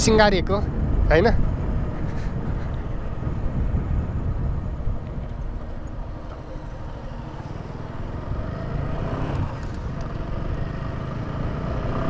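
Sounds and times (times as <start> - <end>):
motorcycle engine rumble: 0.0 - 12.0
road noise: 0.0 - 12.0.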